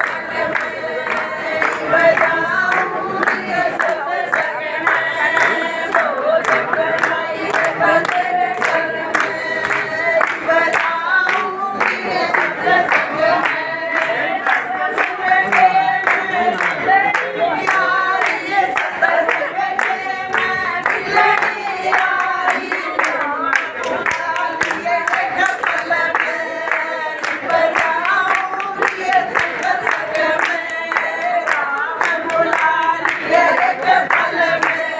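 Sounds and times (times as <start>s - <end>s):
group singing devotional chant: 0.0s - 34.9s
handclaps: 0.0s - 34.9s.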